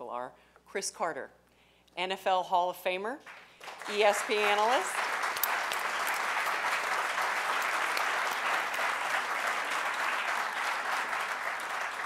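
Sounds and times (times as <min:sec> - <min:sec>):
audience applauding: 0:03.3 - 0:12.0.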